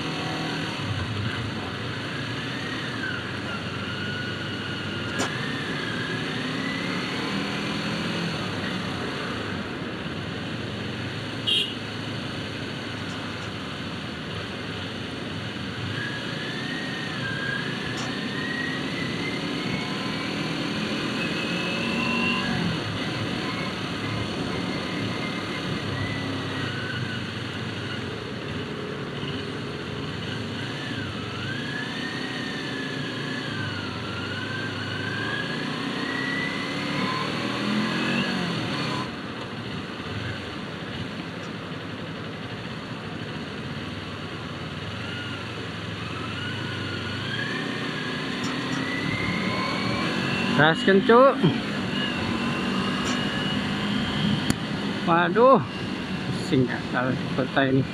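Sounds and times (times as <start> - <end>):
motorcycle engine revving: 0.0 - 9.6, 15.8 - 39.3, 44.8 - 57.9.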